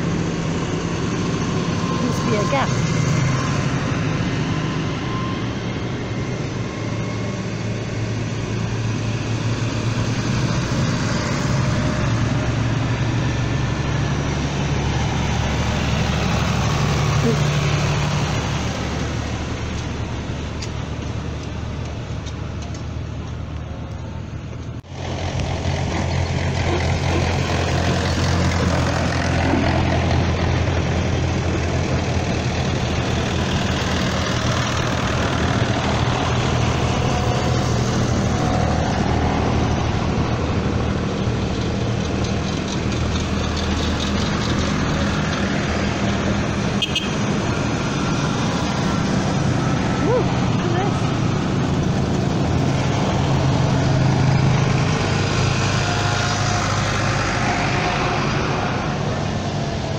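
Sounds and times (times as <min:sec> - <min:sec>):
tractor engines droning: 0:00.0 - 0:59.9.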